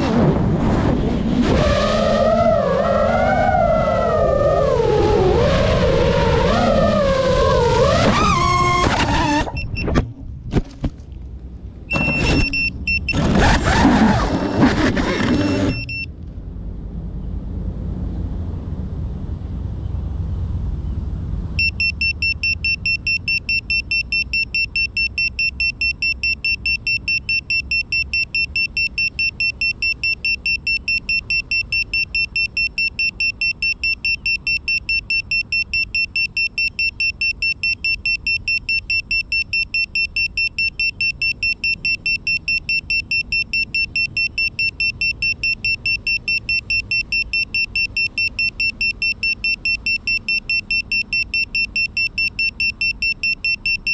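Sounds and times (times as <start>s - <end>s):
wind rumble on microphone: 0.0s - 7.8s
drone buzzer beeping: 14.4s - 16.0s.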